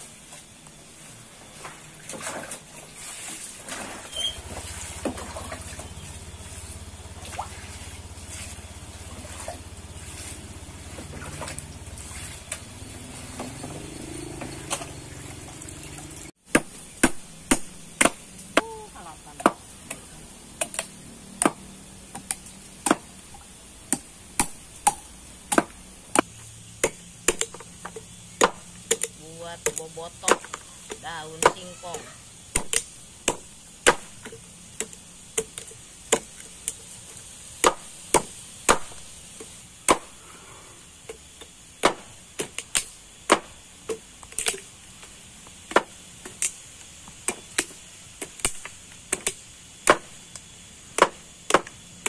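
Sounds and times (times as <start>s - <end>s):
leaves splashing in water: 1.4s - 16.3s
machete chopping coconut husk: 16.5s - 23.2s, 23.9s - 36.8s, 37.6s - 40.2s, 41.8s - 44.7s, 45.7s - 51.8s.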